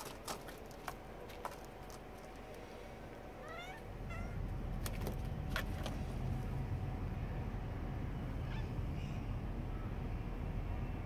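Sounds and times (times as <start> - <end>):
low rumble: 0.2 - 11.0
cat chirping meows: 3.4 - 4.4, 8.4 - 9.2.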